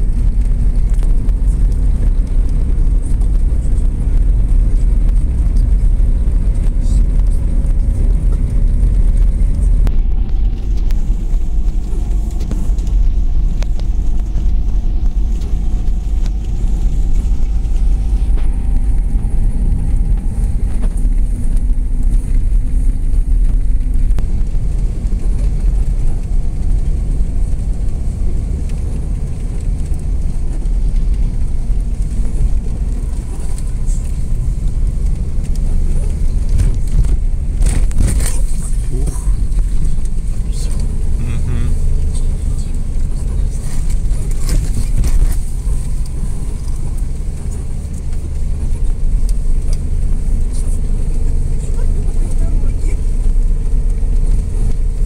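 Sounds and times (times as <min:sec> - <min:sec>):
engine and tyres rumbling on snow: 0:00.0 - 0:55.0
faint rising whine: 0:01.2 - 0:36.4.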